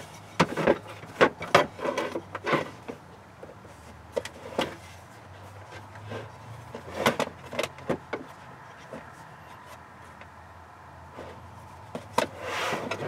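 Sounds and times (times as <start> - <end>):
amplifier sliding scrape: 12.3 - 13.0.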